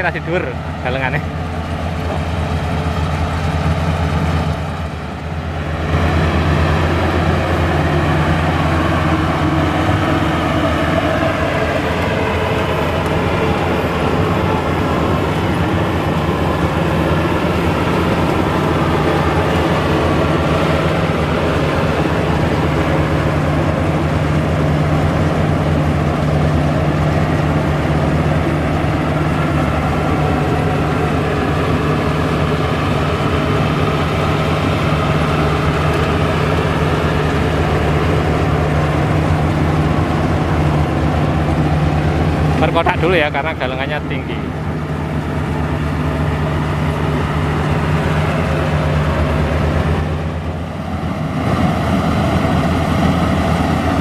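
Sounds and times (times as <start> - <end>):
harvester engine drone: 0.0 - 54.0
threshing machinery whir: 0.0 - 54.0.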